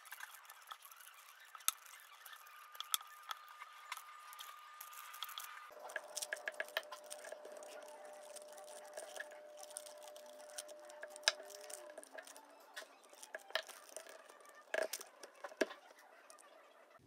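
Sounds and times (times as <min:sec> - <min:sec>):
faint steady hum: 0:01.6 - 0:17.0
paper rustling: 0:03.8 - 0:16.5.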